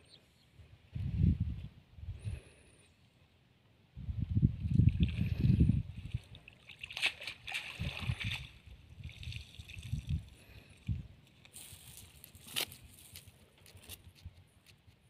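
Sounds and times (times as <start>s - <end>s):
water splashing and sloshing: 4.6s - 12.8s.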